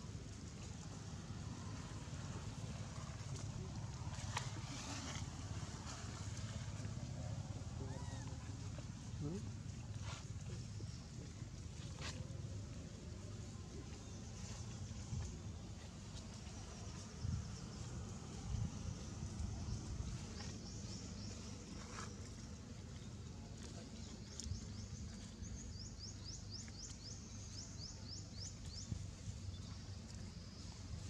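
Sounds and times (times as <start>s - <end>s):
faint high insect-like hum: 0.0s - 31.0s
steady low rumble: 0.0s - 31.0s.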